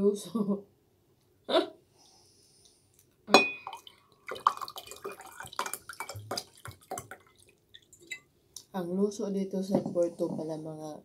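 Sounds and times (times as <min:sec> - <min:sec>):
water gurgling: 0:03.6 - 0:08.2.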